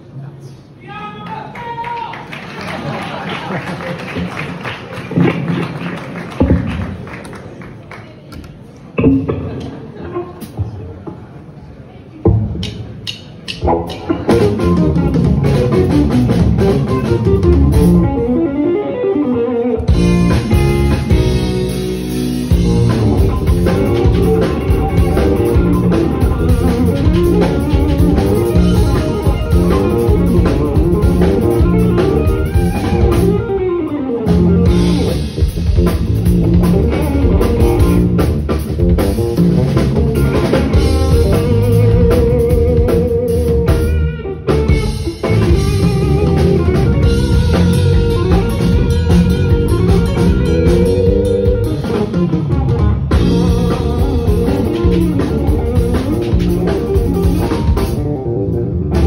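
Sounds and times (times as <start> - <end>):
electric guitar lead lines: 9.0 - 10.7, 13.5 - 59.0
bass: 12.2 - 59.0
drum kit: 12.3 - 18.4, 19.9 - 59.0.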